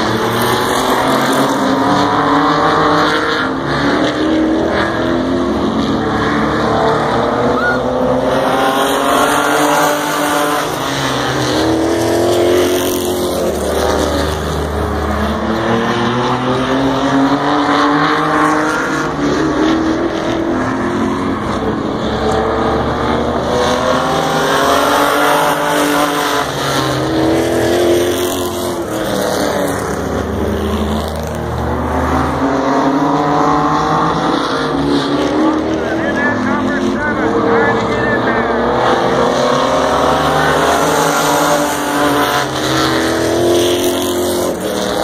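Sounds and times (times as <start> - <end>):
race car engines revving: 0.0 - 45.0.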